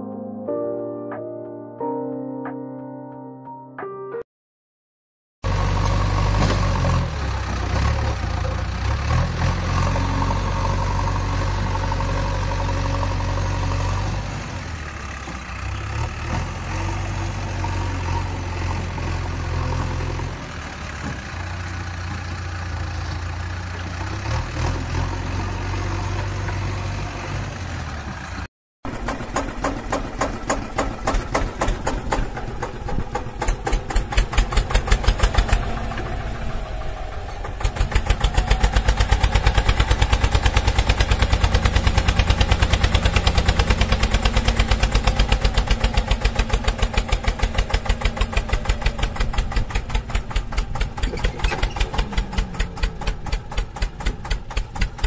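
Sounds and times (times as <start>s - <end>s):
tractor diesel engine running: 5.4s - 55.0s.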